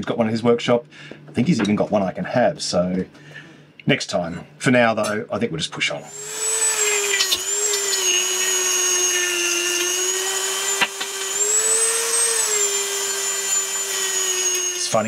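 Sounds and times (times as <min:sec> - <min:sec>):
rotary tool grinding whine: 0:06.1 - 0:15.0.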